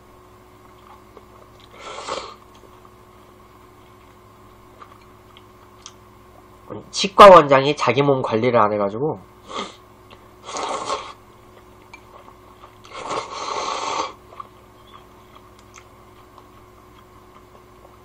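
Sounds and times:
person slurping noodles: 0:01.6 - 0:02.4, 0:10.4 - 0:11.2, 0:12.8 - 0:14.2.

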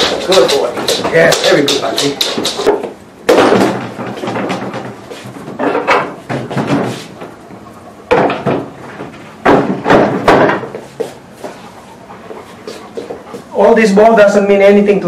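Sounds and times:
wooden boxes knocking: 0:00.0 - 0:07.0, 0:08.1 - 0:10.8.

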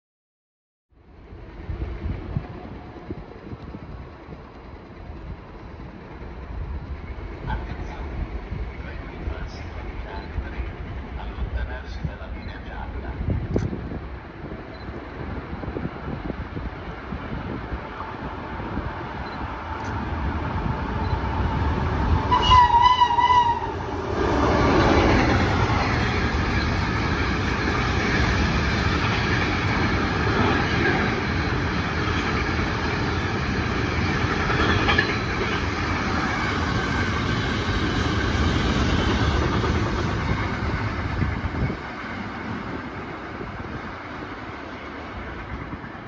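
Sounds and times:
train wagons rumbling: 0:01.4 - 0:46.0
train horn blast: 0:22.2 - 0:23.8.

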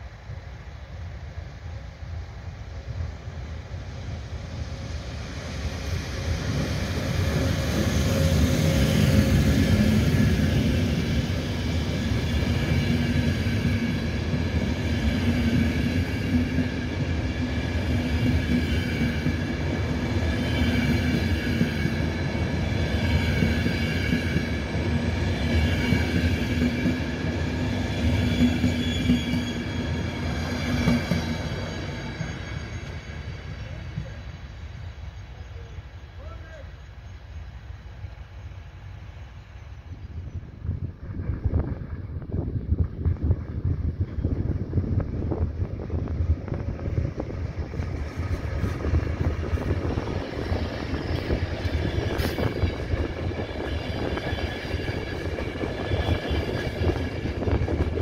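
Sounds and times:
electric locomotive passing: 0:00.0 - 0:58.0
train wheels rumbling: 0:00.0 - 0:58.0.

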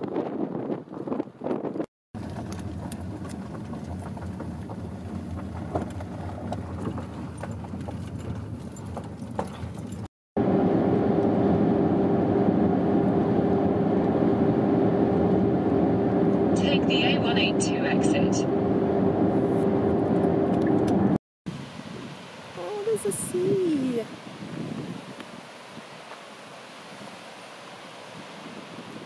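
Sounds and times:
road and engine drone: 0:00.8 - 0:29.0
tyres rolling over gravel: 0:02.2 - 0:10.1.

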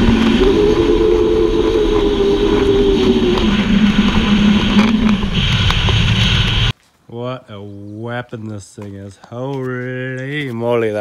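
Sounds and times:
off-road vehicle engine running: 0:00.0 - 0:06.7.

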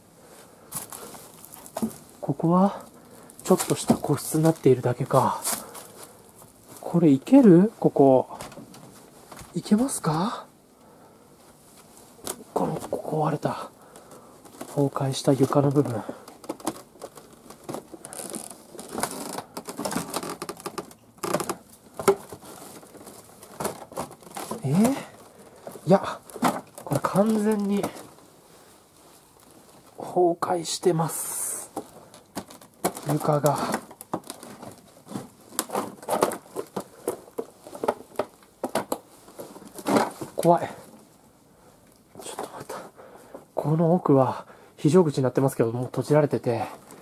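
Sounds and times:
footsteps on rubble and boards: 0:00.7 - 0:02.2, 0:13.8 - 0:28.2, 0:31.7 - 0:40.4.

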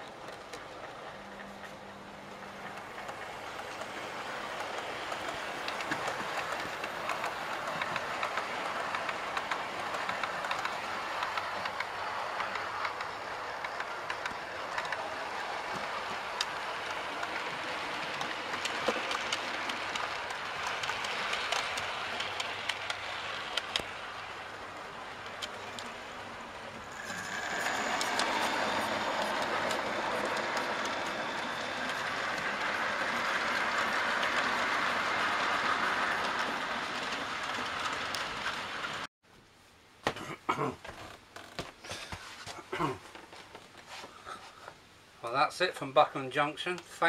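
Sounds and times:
model train running on track: 0:00.0 - 0:39.1
small clicks of track: 0:02.6 - 0:15.1, 0:15.7 - 0:24.0, 0:25.2 - 0:26.0, 0:27.1 - 0:39.1.

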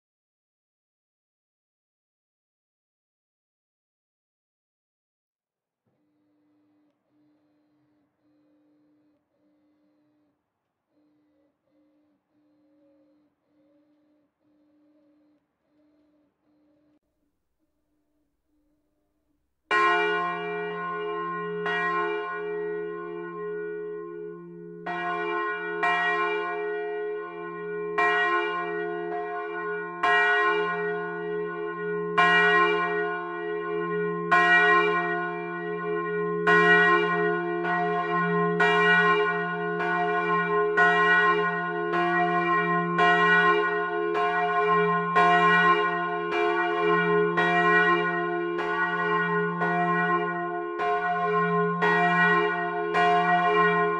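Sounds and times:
church bell ringing: 0:19.7 - 0:53.9.

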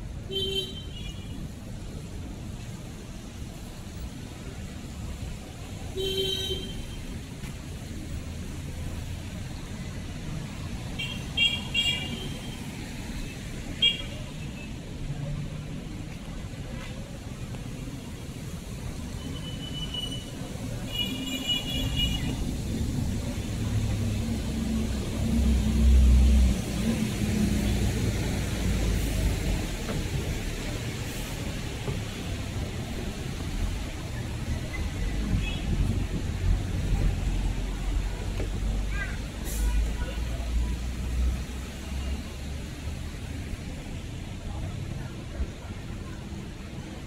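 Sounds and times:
street traffic: 0:00.0 - 0:47.0
passing vehicle rumble: 0:22.2 - 0:47.0.

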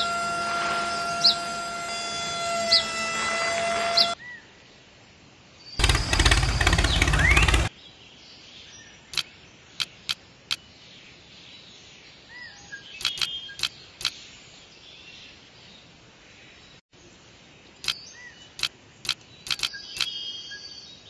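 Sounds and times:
loud engine-like burst: 0:05.8 - 0:07.7
bird chirping faintly: 0:12.3 - 0:21.0.

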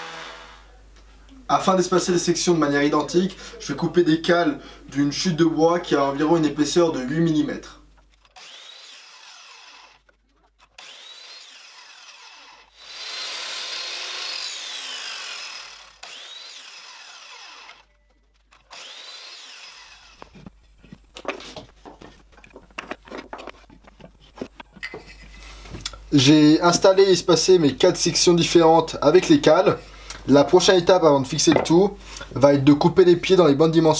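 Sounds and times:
saw blade cutting wood: 0:00.0 - 0:00.7, 0:08.2 - 0:17.9, 0:18.6 - 0:20.5
miter saw motor whine: 0:10.8 - 0:17.9, 0:18.7 - 0:20.4.

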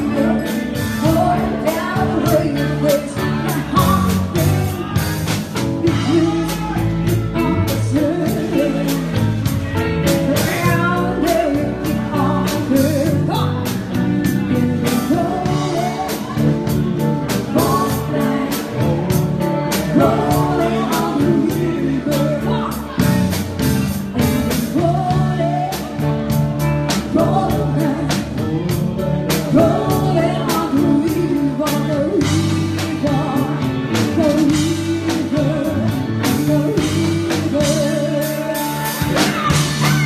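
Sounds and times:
drum kit steady beat: 0:00.0 - 0:40.0
electric guitar: 0:00.0 - 0:40.0
woman singing: 0:00.0 - 0:40.0.

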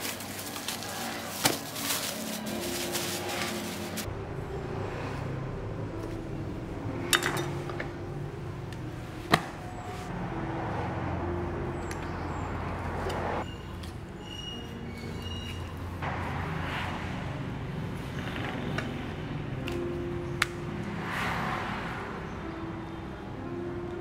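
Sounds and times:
plastic bag rustling: 0:00.0 - 0:04.1.

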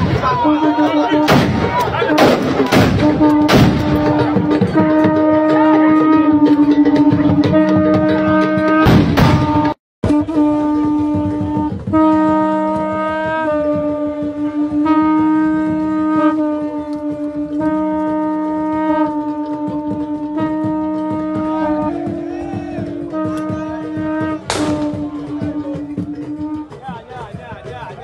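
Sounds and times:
wind instruments holding long notes: 0:00.0 - 0:28.0.

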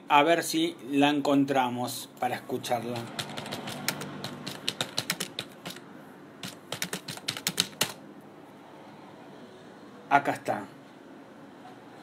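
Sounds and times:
typing clicks: 0:02.9 - 0:05.8, 0:06.4 - 0:08.0.

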